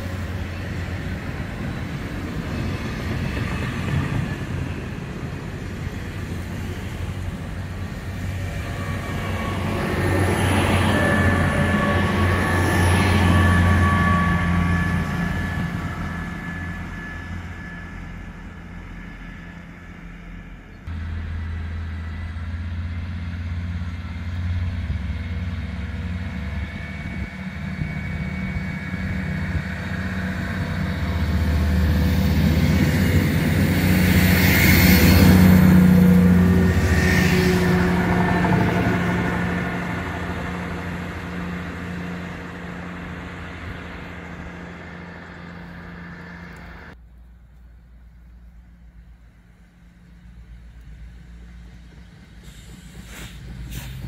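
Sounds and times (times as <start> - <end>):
diesel train engines humming: 0.0 - 54.0
train passing: 0.0 - 54.0
bright hiss: 52.4 - 54.0.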